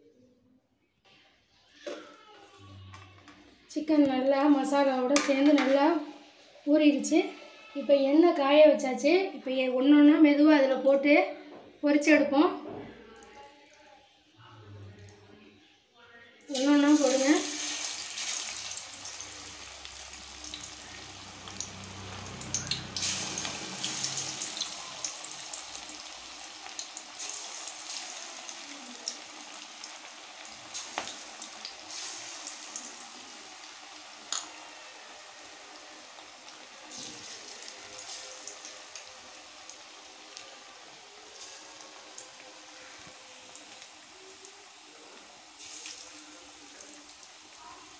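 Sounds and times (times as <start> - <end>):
chicken deep-frying in hot oil: 16.5 - 47.9.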